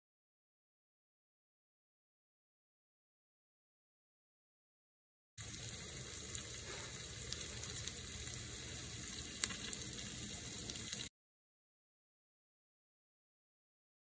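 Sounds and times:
garlic sizzling in butter: 0:05.4 - 0:11.1.

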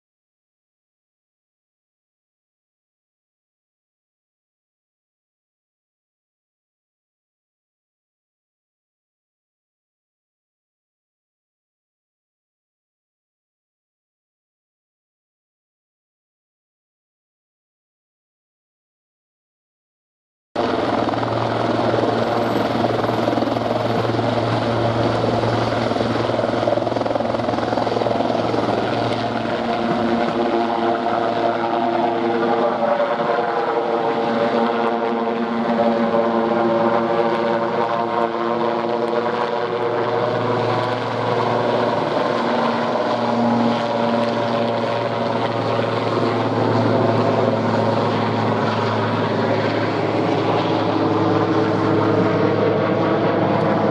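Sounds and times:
helicopter rotor and engines: 0:20.6 - 0:53.9.

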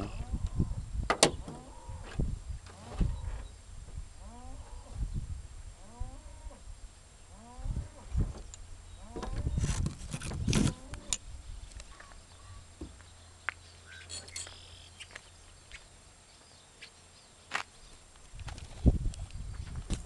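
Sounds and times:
faint bird chirps: 0:11.5 - 0:18.1.

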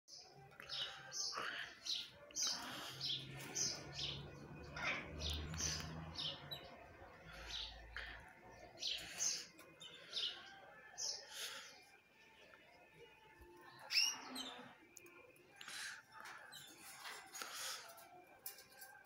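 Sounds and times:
canaries chirping: 0:00.1 - 0:19.0.

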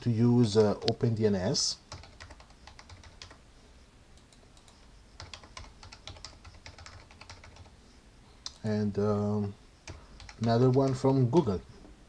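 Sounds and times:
faint typing on keyboard: 0:00.4 - 0:01.2, 0:01.9 - 0:03.5, 0:04.1 - 0:07.8, 0:08.4 - 0:12.0.

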